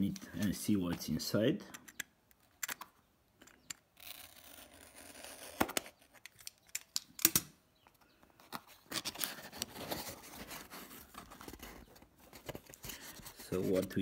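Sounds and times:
cardboard box being opened: 8.5 - 13.9.

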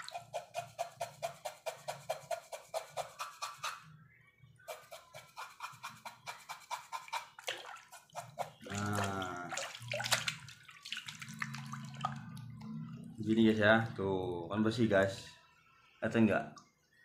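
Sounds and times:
scrubbing by hand: 4.8 - 12.3
water splashing in a bucket: 7.0 - 12.4.

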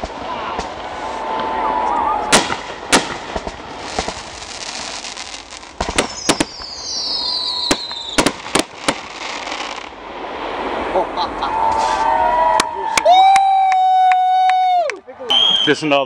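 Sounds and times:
firework shells bursting: 2.3 - 9.9
whistle sliding down in pitch: 15.3 - 15.8.

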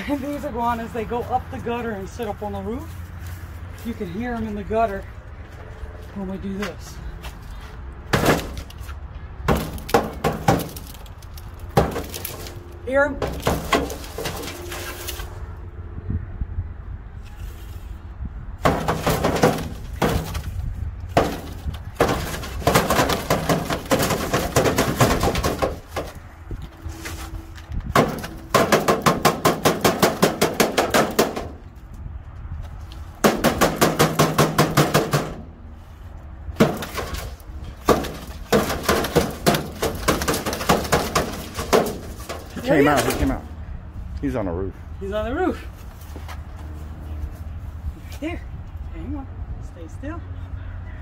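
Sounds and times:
pole rattling in metal gutter: 9.4 - 12.6, 13.2 - 15.0, 18.6 - 26.3, 27.9 - 31.7, 33.2 - 35.5, 36.6 - 43.4.

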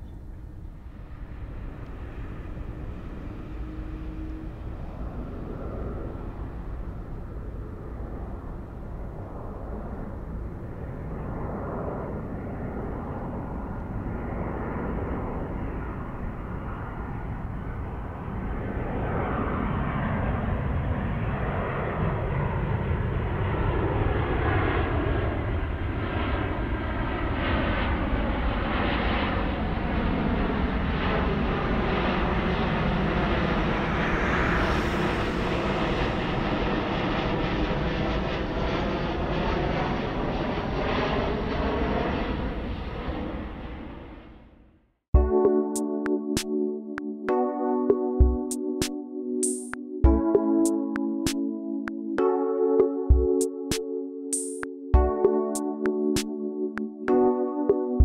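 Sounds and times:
low engine rumble: 0.0 - 21.7
jet airliner engines whining: 0.0 - 44.6.

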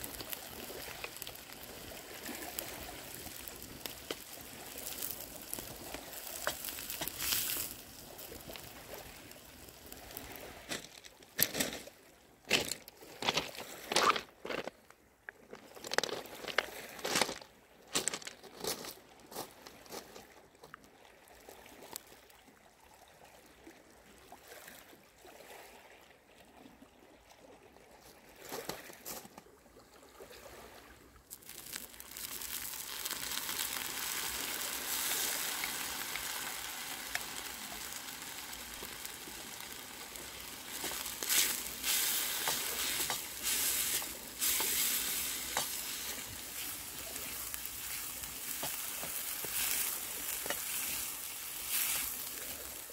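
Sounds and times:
leeks frying in a pan: 0.0 - 10.4, 31.3 - 52.9
peas sizzling in a pan: 0.0 - 10.5, 31.3 - 52.9
sharp clicks and crunches: 3.2 - 7.8, 42.3 - 51.0
wooden spoon stirring: 40.7 - 52.8.

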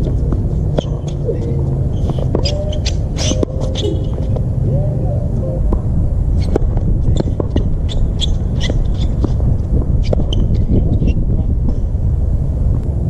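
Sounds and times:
tennis ball hits and bounces: 0.0 - 4.4, 6.4 - 9.4
low rumble: 0.0 - 13.0.

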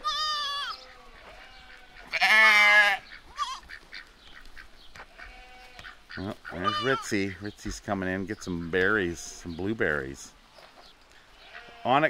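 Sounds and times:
goats bleating: 0.0 - 4.1, 5.0 - 7.5, 11.3 - 12.0.

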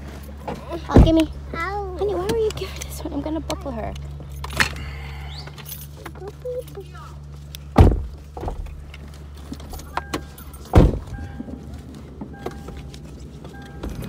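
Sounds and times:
car cabin low hum: 0.0 - 14.0
car doors slamming shut: 0.8 - 1.3, 7.7 - 8.8, 9.6 - 11.6.

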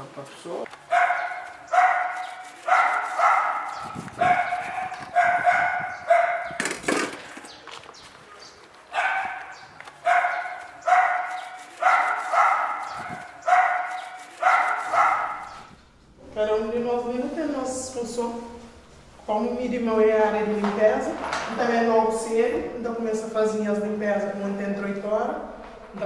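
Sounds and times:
dog barking: 0.9 - 6.6, 8.3 - 15.7.

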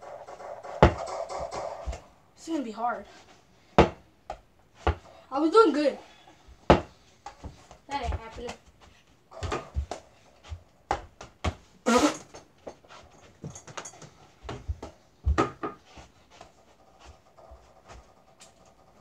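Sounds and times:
toy basketball bouncing: 0.3 - 2.0, 6.6 - 8.6, 9.3 - 10.1, 13.4 - 15.8
ball hitting door: 0.7 - 2.0, 6.6 - 7.0, 9.4 - 10.0.

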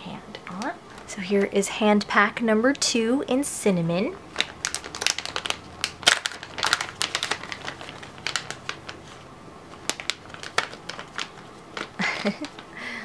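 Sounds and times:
plastic bag crinkling and clicking: 4.3 - 12.7.

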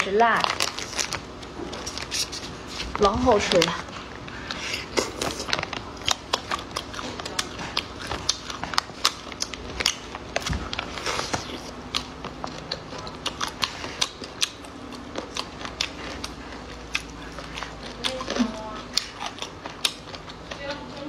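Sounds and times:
plastic food pouch rustling: 0.0 - 13.3
chewing and lip smacks: 4.3 - 21.0.

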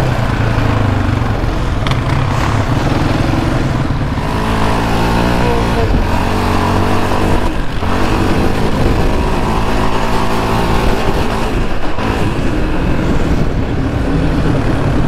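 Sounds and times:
quad bike engine revving: 0.0 - 15.0.

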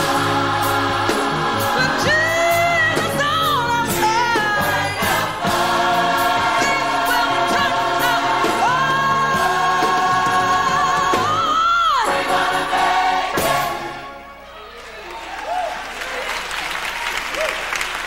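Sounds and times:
gospel choir singing with band: 0.0 - 14.4.

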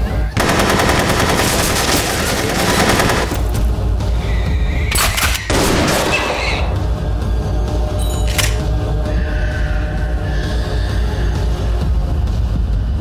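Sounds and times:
rapid automatic gunfire: 0.4 - 3.5
gunshots: 0.4 - 3.6, 4.9 - 6.4.

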